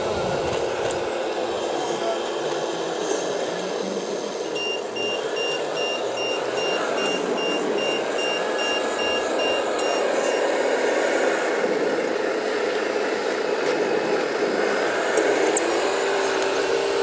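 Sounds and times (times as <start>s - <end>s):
mechanical hum: 0.0s - 17.0s
reverse warning alarm beeping: 4.5s - 10.6s.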